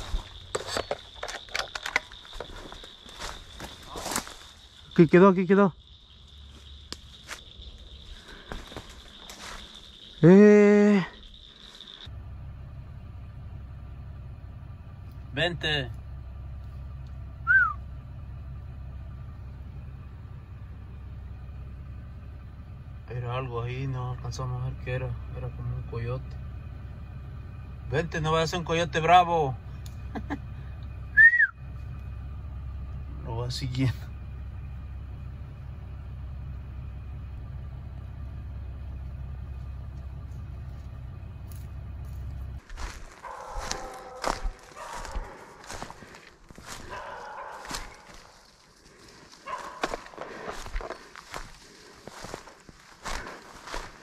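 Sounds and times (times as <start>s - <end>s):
car engine idling: 0.0s - 54.0s
short rising and falling whistle: 17.4s - 17.9s, 31.1s - 31.8s.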